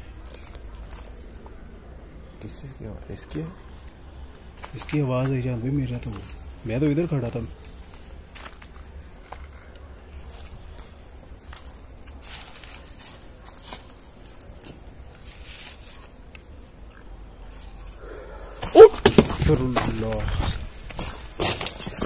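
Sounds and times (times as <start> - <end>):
faint scuffs and clicks: 0.1 - 1.7, 3.7 - 5.4, 7.2 - 16.8.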